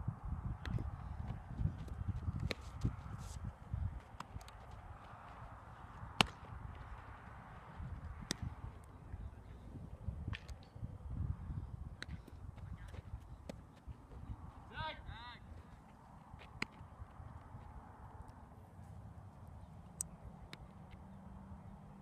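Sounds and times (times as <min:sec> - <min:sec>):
baseball smacking into glove: 0:06.2 - 0:06.5.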